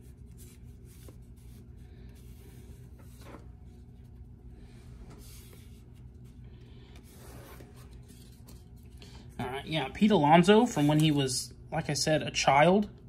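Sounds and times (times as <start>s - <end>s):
cards rustling and scraping: 0.0s - 9.4s, 10.6s - 11.4s
steady low hum: 0.0s - 13.0s.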